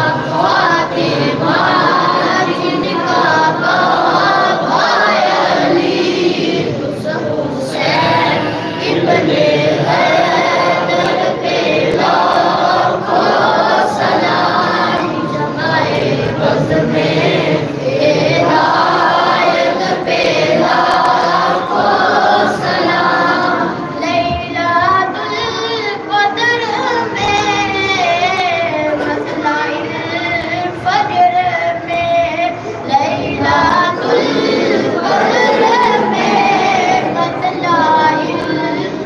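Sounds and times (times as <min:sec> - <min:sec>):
men singing a chant: 0:00.0 - 0:24.8, 0:32.9 - 0:39.0.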